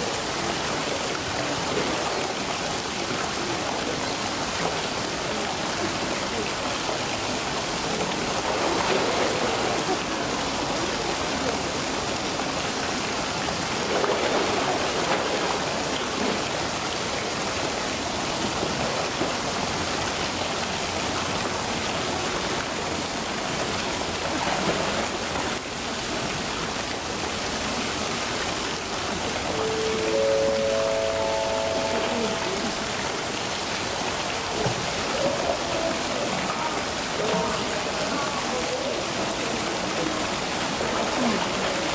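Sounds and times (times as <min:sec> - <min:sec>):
running water rushing: 0:00.0 - 0:41.9
short pitched sound: 0:29.5 - 0:33.2.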